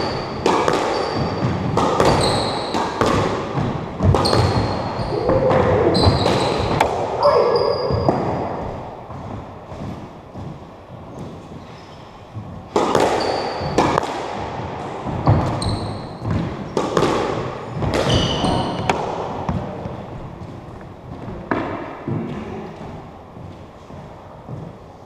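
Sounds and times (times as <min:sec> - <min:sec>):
shoe squeaks on wooden floor: 0:00.0 - 0:02.7, 0:04.2 - 0:08.2, 0:13.2 - 0:13.8, 0:15.2 - 0:16.3, 0:18.1 - 0:18.9
squash ball cracking off rackets: 0:00.0 - 0:07.2, 0:12.6 - 0:22.5.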